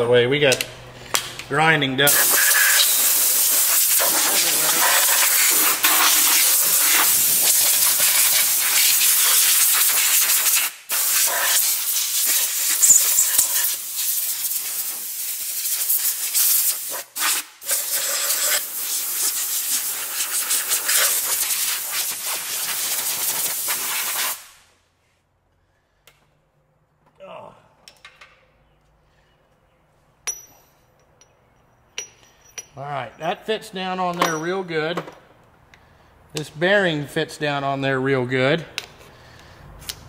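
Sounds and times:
compressed air blow gun hissing: 0:02.1 - 0:24.6.

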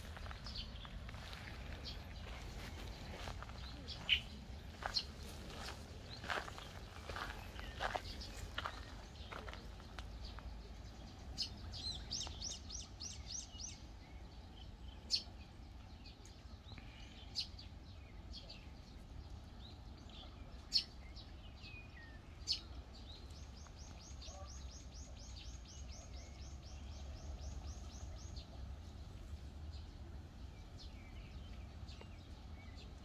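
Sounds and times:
small songbirds singing: 0:00.0 - 0:33.0.

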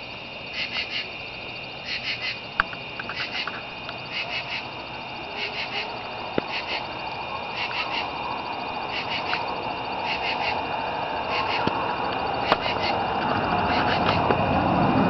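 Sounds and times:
frogs calling: 0:00.0 - 0:15.0
high-pitched drone: 0:03.2 - 0:15.0.

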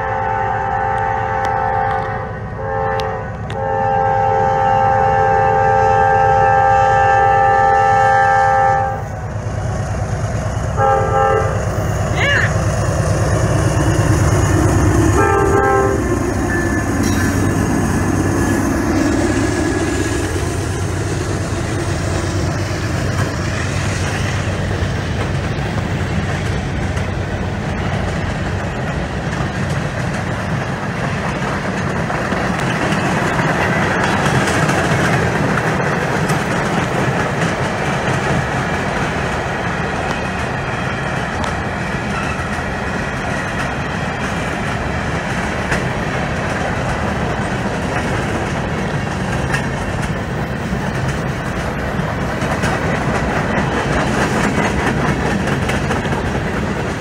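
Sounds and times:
train horn: 0:00.0 - 0:09.2, 0:10.8 - 0:11.7, 0:15.1 - 0:16.9
diesel locomotives passing: 0:00.0 - 0:57.0
train wheels on rails clacking: 0:11.6 - 0:57.0.

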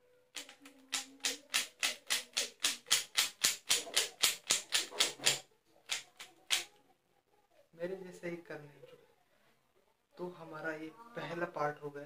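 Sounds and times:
plastic puzzle cube clacking: 0:00.3 - 0:06.8.

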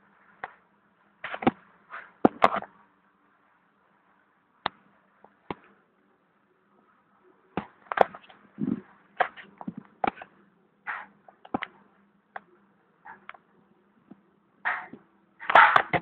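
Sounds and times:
faint steady hum: 0:00.0 - 0:16.0
sharp clicks and knocks: 0:10.9 - 0:12.5, 0:14.1 - 0:16.0.

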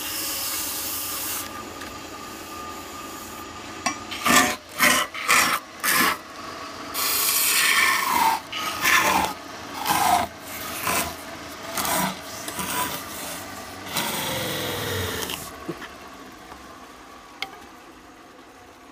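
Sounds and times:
lathe running: 0:00.0 - 0:15.7
lathe tool scraping wood: 0:02.3 - 0:06.3, 0:06.9 - 0:15.6.

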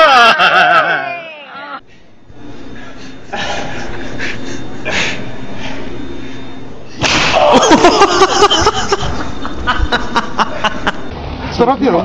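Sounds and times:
body crashing onto gym floor: 0:07.0 - 0:07.6.

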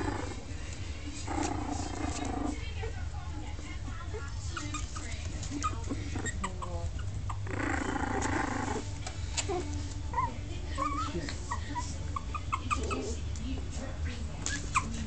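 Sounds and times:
puppy growl: 0:00.0 - 0:03.1, 0:03.9 - 0:13.4, 0:14.4 - 0:15.0
puppy whimpers and squeaks: 0:04.5 - 0:13.2, 0:14.4 - 0:15.0.

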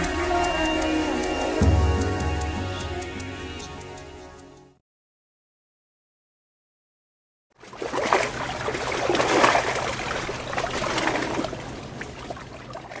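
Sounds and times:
water sloshing and gurgling: 0:07.6 - 0:13.0.

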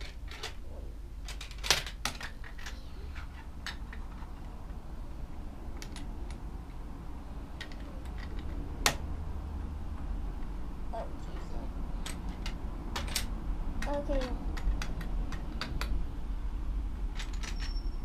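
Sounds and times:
low room hum: 0:00.0 - 0:18.0
plastic bricks clicking: 0:01.3 - 0:02.8, 0:12.0 - 0:16.0.

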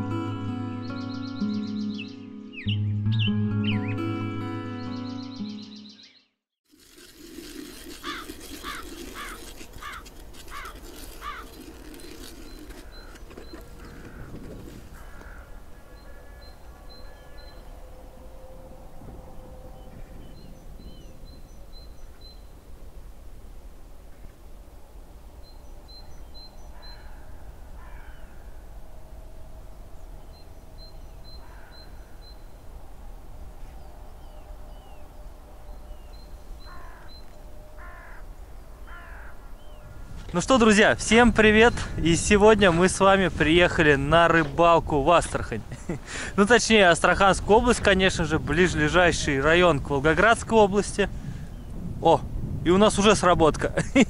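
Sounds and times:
small birds chirping and whistling: 0:00.8 - 0:04.0
bird calling: 0:07.6 - 0:17.9, 0:30.0 - 0:32.6, 0:35.7 - 0:40.1
crows cawing: 0:08.0 - 0:12.0, 0:12.8 - 0:17.6, 0:26.7 - 0:28.7, 0:31.4 - 0:32.2, 0:36.6 - 0:37.2, 0:37.8 - 0:40.1.

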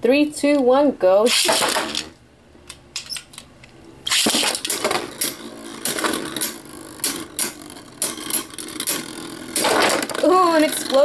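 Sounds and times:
spinning tops whirring: 0:01.3 - 0:02.2, 0:04.1 - 0:11.0
spinning tops rattling: 0:04.1 - 0:11.0.

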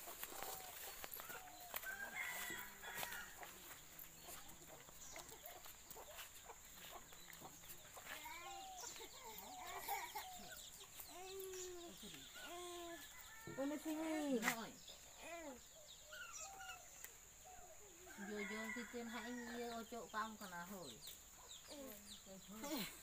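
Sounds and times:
chickens clucking: 0:00.0 - 0:13.3
light rustles and steps: 0:00.0 - 0:15.0.

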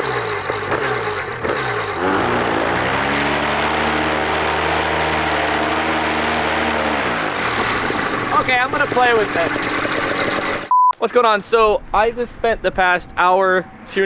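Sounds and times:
paramotor engine and propeller running: 0:00.0 - 0:10.7.

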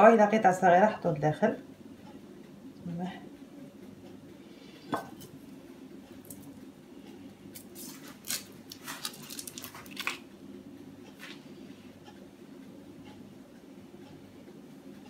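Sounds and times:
low steady hum: 0:00.0 - 0:15.0
foil wrapper crinkling: 0:07.6 - 0:10.2.

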